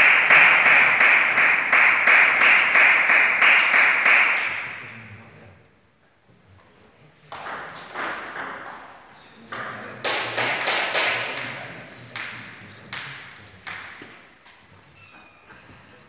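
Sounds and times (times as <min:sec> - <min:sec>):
rhythmic clapping: 0:00.0 - 0:04.8, 0:10.0 - 0:14.6.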